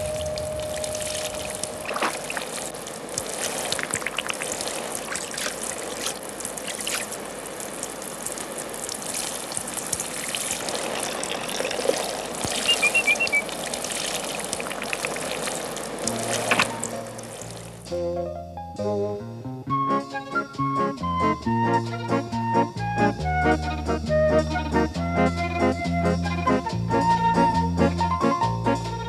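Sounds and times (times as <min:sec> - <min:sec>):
drips and splashes: 0:00.0 - 0:17.9
rain falling: 0:00.0 - 0:17.9.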